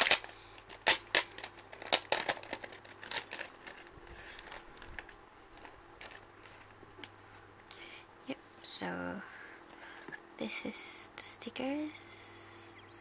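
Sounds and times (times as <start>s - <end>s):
plastic wrapper and envelope crinkling: 0.0s - 7.1s.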